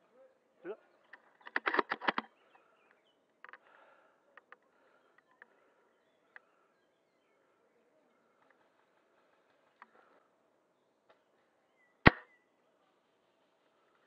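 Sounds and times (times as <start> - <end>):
sharp clicks: 1.1 - 2.3
faint bird chirps: 2.2 - 14.0.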